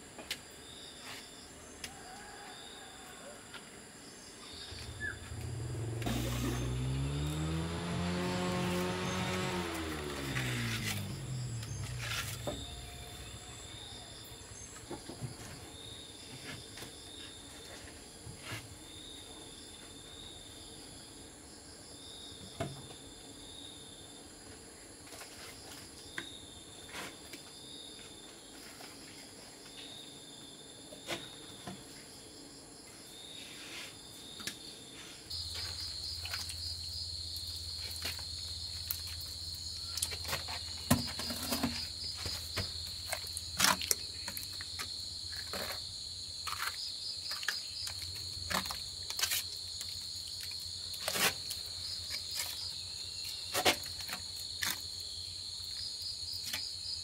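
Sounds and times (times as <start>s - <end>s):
crickets chirping: 0.0s - 57.0s
steady insect trill: 0.0s - 57.0s
wet cement spread by hand: 8.8s - 13.1s, 46.4s - 52.8s
bucket knocking: 40.2s - 44.5s.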